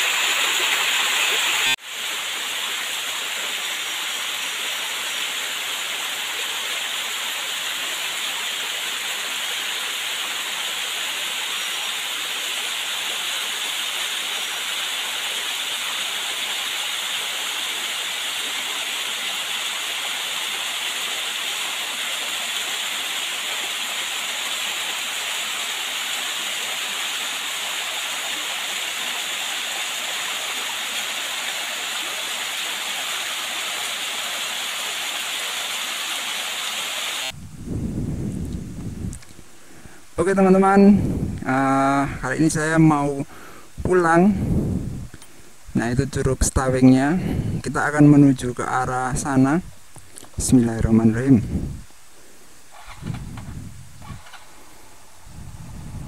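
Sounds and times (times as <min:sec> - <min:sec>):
small waterfall splashing: 0:00.0 - 0:37.4.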